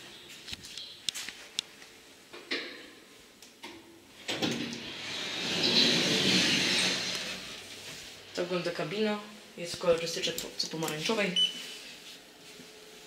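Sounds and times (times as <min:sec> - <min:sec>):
lift doors sliding open: 0:04.2 - 0:07.7.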